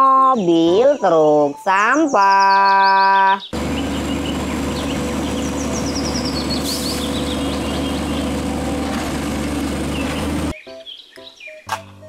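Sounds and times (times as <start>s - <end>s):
birds chirping: 0.0s - 11.7s
truck engine idling: 3.6s - 10.5s.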